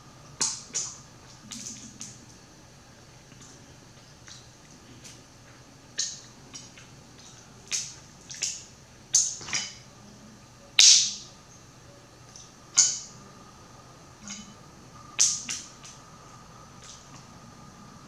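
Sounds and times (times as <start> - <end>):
wet eating noises: 0.4 - 2.4.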